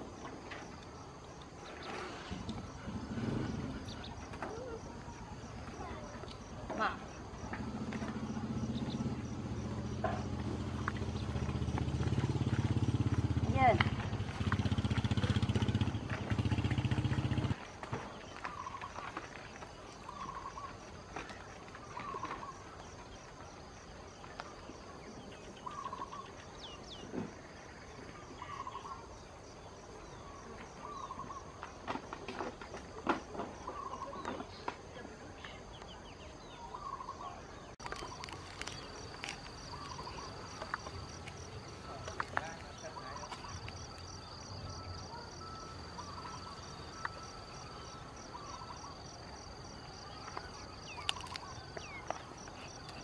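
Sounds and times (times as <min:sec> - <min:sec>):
insects trilling: 0:00.0 - 0:53.0
bird calling: 0:18.3 - 0:23.1, 0:25.3 - 0:27.2, 0:28.0 - 0:29.1, 0:30.1 - 0:31.8, 0:33.6 - 0:34.6, 0:35.9 - 0:53.0.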